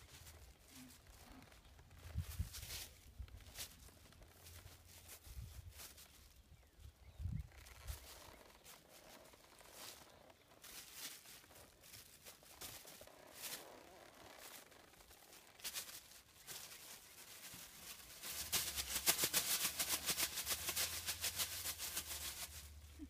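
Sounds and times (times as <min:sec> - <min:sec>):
wind rumbling on microphone: 0:01.8 - 0:03.5, 0:05.2 - 0:08.3
plastic bag rustling: 0:07.7 - 0:23.0.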